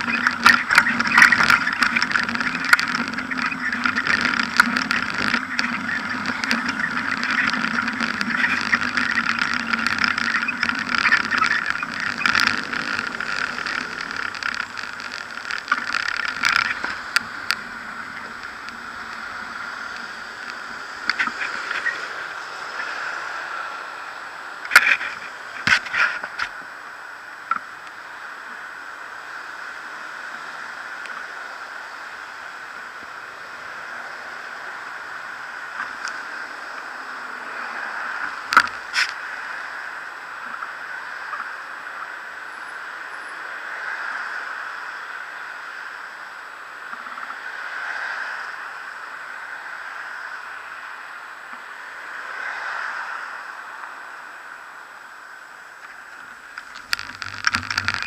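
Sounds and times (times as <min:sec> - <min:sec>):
sharp clicks: 0:00.0 - 0:22.0
muffled street traffic: 0:00.0 - 0:58.0.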